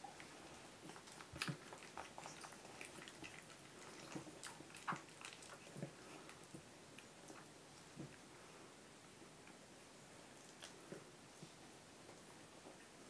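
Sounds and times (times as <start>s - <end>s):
puppies suckling: 0.0s - 8.2s.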